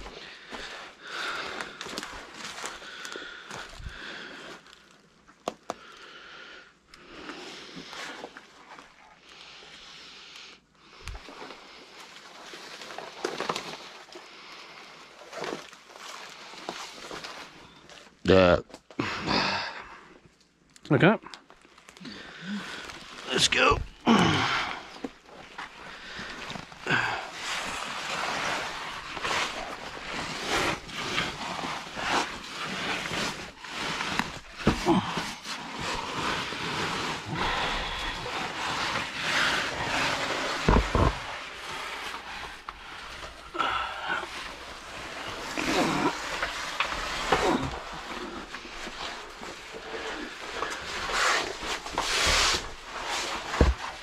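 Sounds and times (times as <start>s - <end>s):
clothing and gear scraping rock: 0.0s - 4.9s, 21.8s - 54.0s.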